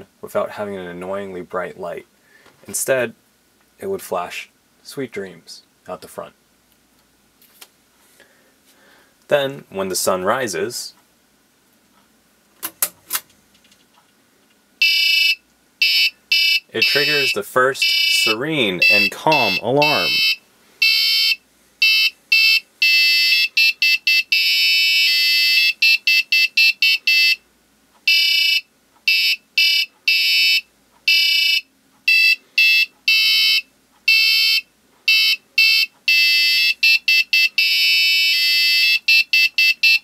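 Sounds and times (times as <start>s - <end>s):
buzzer beeping a melody: 14.8s - 27.4s, 28.1s - 40.0s.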